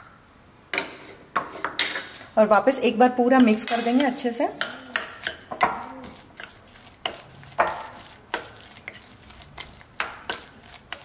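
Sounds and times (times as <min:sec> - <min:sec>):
spoon scraping wet batter: 0:03.4 - 0:11.0.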